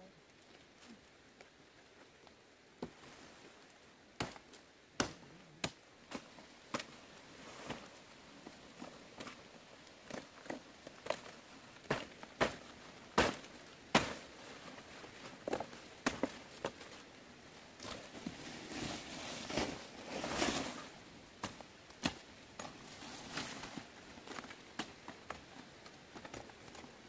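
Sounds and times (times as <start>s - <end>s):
leaves rustling and crackling: 0.0s - 27.0s
machete chopping plant stalks: 4.2s - 6.9s, 11.9s - 14.2s.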